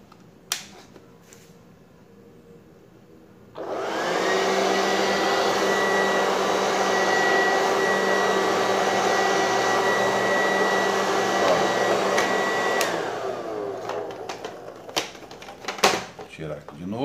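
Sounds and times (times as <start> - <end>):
robot vacuum cleaner whining: 3.6 - 15.1.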